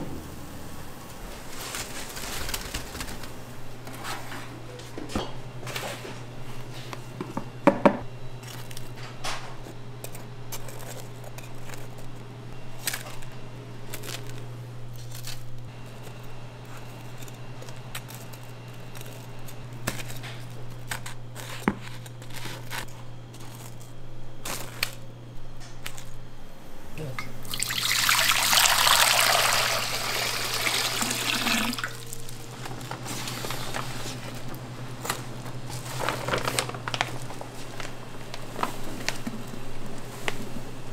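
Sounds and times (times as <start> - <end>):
steady low hum: 0.0 - 40.9
liquid pouring: 27.4 - 32.3.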